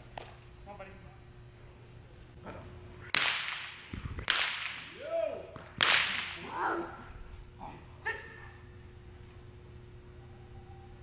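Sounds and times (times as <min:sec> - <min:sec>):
whip cracks echoing: 0:03.0 - 0:06.6.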